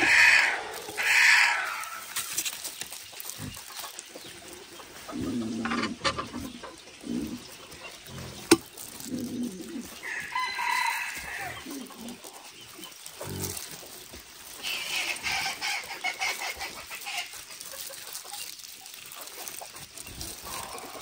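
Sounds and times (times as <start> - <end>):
chickens clucking: 0.0 - 21.0
rooster crowing: 10.0 - 11.8.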